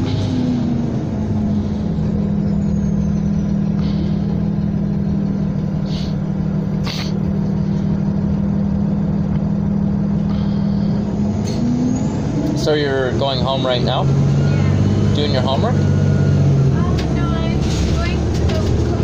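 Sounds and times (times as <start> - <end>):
bus engine and road drone: 0.0 - 19.0.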